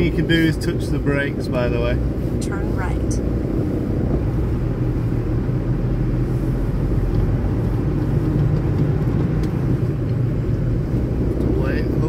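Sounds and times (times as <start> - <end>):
truck diesel engine rumbling: 0.0 - 12.0.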